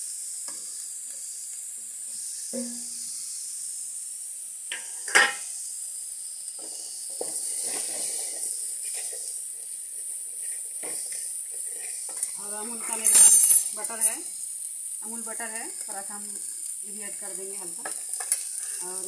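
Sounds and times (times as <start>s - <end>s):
corn kernels sizzling in metal pot: 0.0s - 19.0s
sharp metal clank: 2.6s - 3.0s, 4.7s - 5.4s
wooden spoon stirring kernels: 6.6s - 19.0s.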